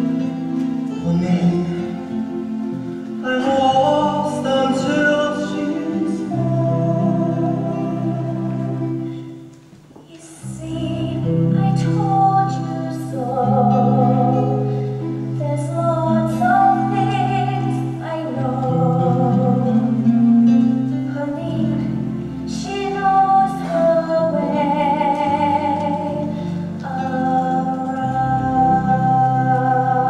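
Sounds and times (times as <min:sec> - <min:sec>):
instrumental accompaniment: 0:00.0 - 0:30.0
girl singing: 0:10.1 - 0:14.7, 0:15.4 - 0:19.7, 0:21.1 - 0:30.0.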